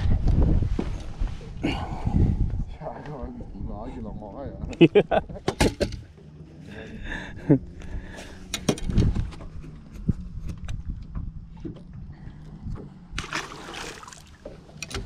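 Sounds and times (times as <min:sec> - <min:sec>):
steady low hum: 0:00.1 - 0:15.0
sharp knocks and clunks: 0:05.4 - 0:06.1.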